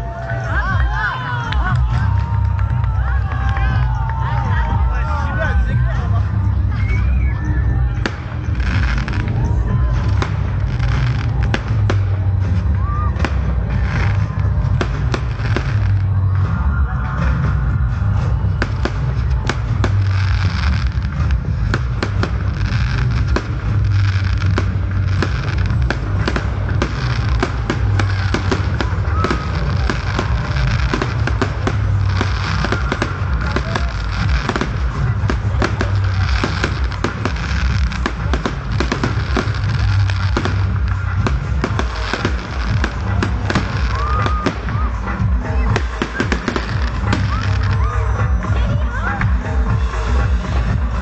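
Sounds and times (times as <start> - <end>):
fireworks bangs and crackles: 0.0 - 51.0.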